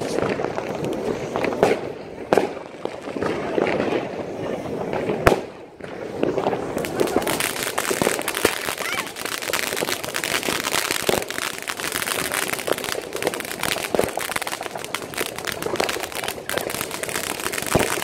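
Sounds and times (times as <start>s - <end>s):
fireworks crackling and popping: 0.0s - 18.0s
loud firework bangs: 0.0s - 18.0s.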